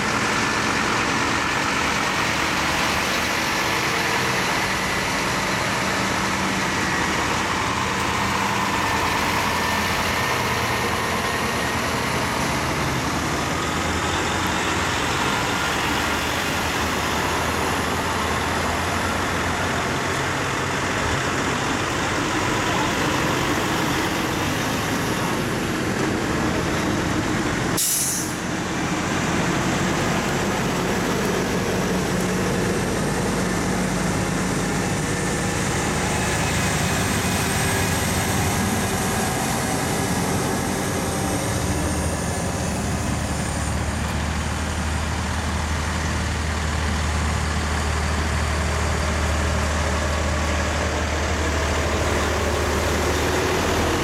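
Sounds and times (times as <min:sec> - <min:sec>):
diesel trucks rolling past: 0:00.0 - 0:54.0
air brake hiss: 0:27.8 - 0:28.5.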